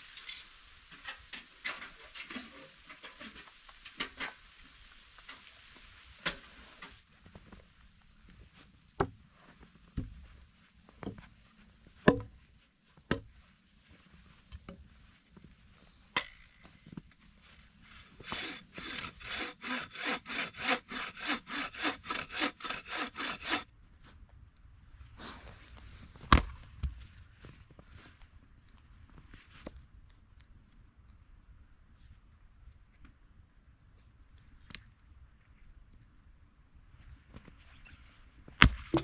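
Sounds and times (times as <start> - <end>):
hand saw cutting wood: 17.9 - 23.7.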